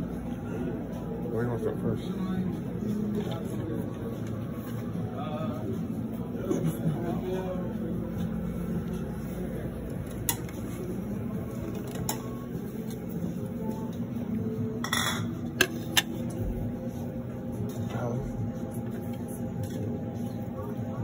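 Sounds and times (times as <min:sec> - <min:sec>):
dishes and metal utensils clinking: 0:14.8 - 0:16.2.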